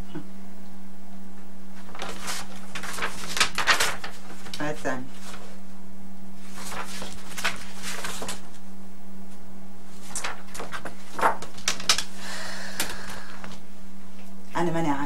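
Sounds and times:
steady low hum: 0:00.0 - 0:15.0
papers handled on a desk: 0:01.8 - 0:05.6, 0:06.4 - 0:08.6, 0:09.9 - 0:12.2.

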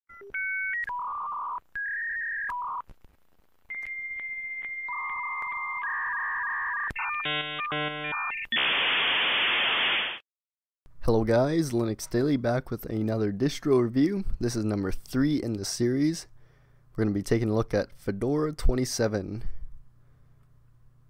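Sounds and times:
modem beeping tones: 0:03.7 - 0:08.7.

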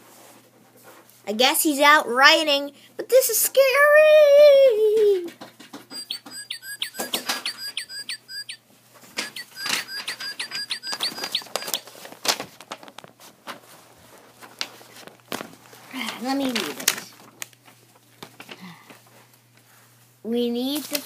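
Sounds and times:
toy bird whistled song: 0:05.9 - 0:08.6, 0:09.2 - 0:11.8.

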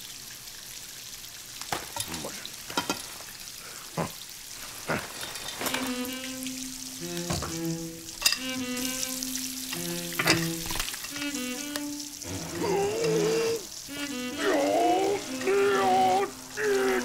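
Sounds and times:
water gushing from sink: 0:00.0 - 0:17.0
music score with held notes: 0:05.7 - 0:17.0.

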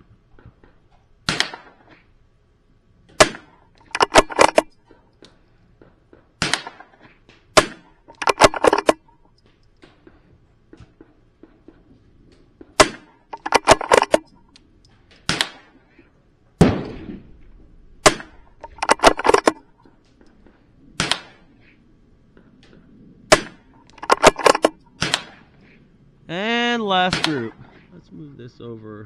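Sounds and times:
rifle shots: 0:01.2 - 0:01.9, 0:03.1 - 0:04.7, 0:06.4 - 0:09.0, 0:12.6 - 0:14.4, 0:15.1 - 0:15.8, 0:16.6 - 0:19.7, 0:21.0 - 0:21.5, 0:23.3 - 0:25.5, 0:27.0 - 0:27.6
metallic clicks of rifle action: 0:03.3 - 0:05.4, 0:07.9 - 0:10.0, 0:13.2 - 0:15.7, 0:18.0 - 0:21.4, 0:22.6 - 0:25.4.

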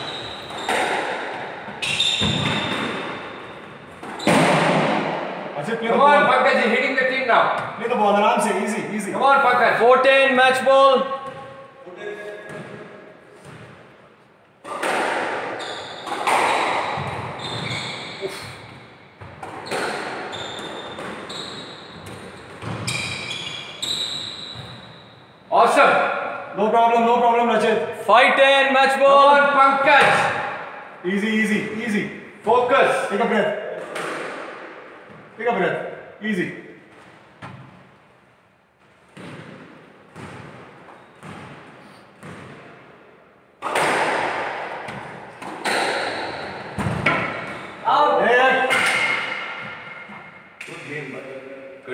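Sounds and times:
shoes squeaking on wooden floor: 0:00.0 - 0:04.6, 0:15.5 - 0:25.1, 0:40.2 - 0:42.5, 0:44.9 - 0:47.9
squash ball hits echoing: 0:00.0 - 0:05.6, 0:14.6 - 0:23.2, 0:33.6 - 0:37.9, 0:39.1 - 0:42.9, 0:43.6 - 0:47.9, 0:48.5 - 0:50.8.

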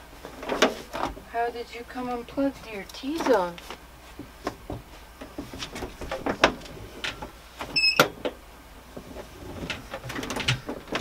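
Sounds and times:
power cord knocks and clicks: 0:09.6 - 0:11.0.

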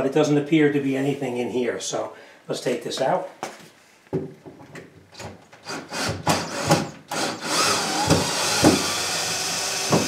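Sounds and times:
power drill running: 0:05.6 - 0:10.0.

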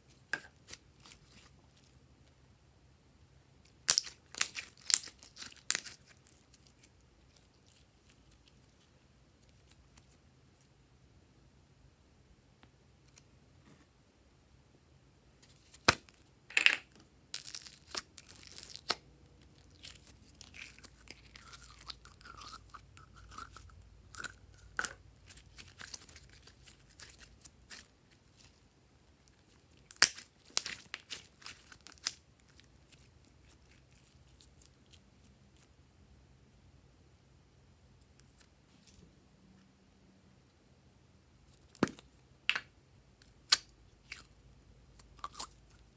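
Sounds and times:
slime crackling and popping: 0:03.8 - 0:06.9, 0:29.3 - 0:35.0.

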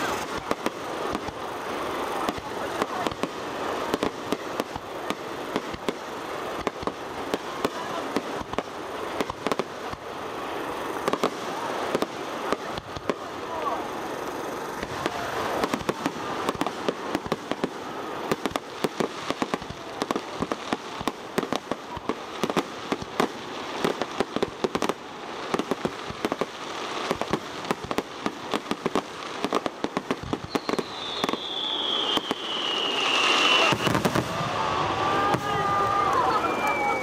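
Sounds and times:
fireworks crackling and popping: 0:00.0 - 0:37.0
falling firework whistle: 0:30.0 - 0:37.0.

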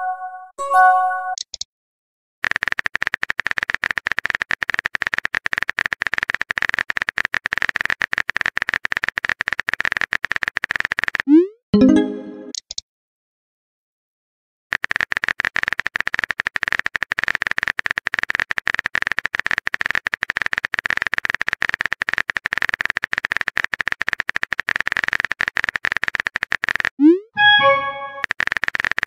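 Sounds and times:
chiming tones: 0:00.0 - 0:01.3, 0:11.8 - 0:12.5, 0:27.4 - 0:28.2
keyboard typing clicks: 0:01.4 - 0:01.6, 0:21.4 - 0:29.0.

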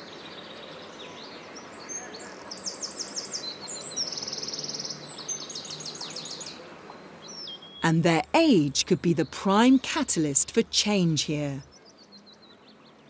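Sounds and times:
songbird singing: 0:00.0 - 0:13.0.

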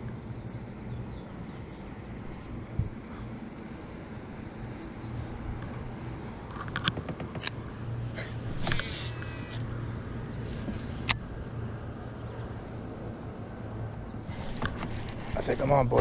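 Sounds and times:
reel spool whirring: 0:08.5 - 0:10.2
fishing reel clicks: 0:08.6 - 0:09.7.

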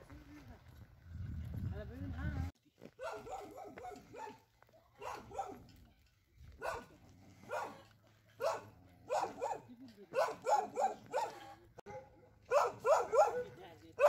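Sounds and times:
dog barking: 0:03.0 - 0:05.7, 0:06.6 - 0:14.0.

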